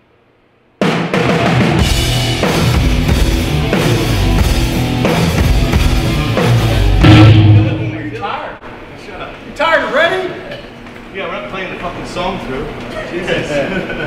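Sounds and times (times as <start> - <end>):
rock band playing: 1.1 - 8.3.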